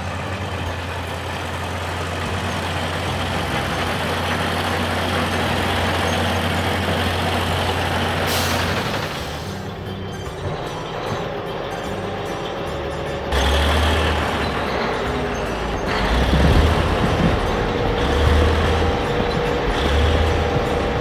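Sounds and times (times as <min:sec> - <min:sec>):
heavy truck engines humming: 0:00.0 - 0:21.0
air brake hiss: 0:08.2 - 0:09.6.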